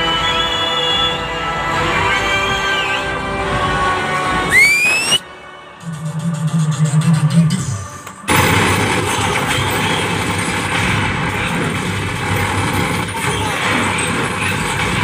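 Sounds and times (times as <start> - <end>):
gunfire: 8.3 - 15.0.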